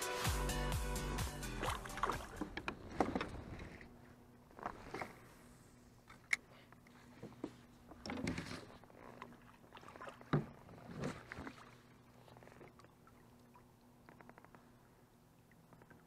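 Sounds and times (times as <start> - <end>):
kayak handling noise: 1.6 - 12.8.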